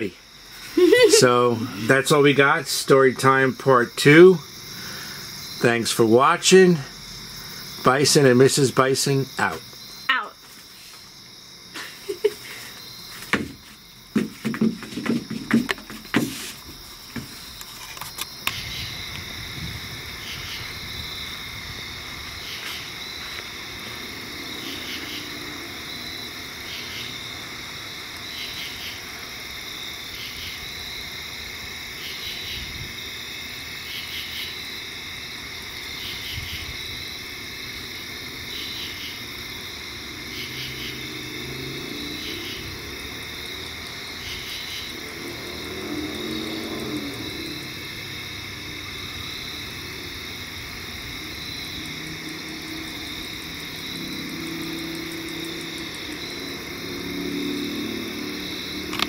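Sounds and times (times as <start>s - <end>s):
insects trilling: 0.0s - 59.0s
low engine hum: 44.9s - 59.0s.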